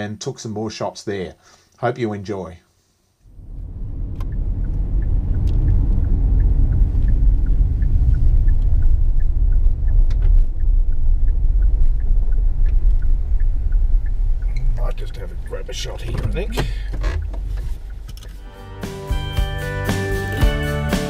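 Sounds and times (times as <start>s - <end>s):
car engine and tyre rumble: 3.3s - 18.4s
faint clicks: 4.1s - 18.4s.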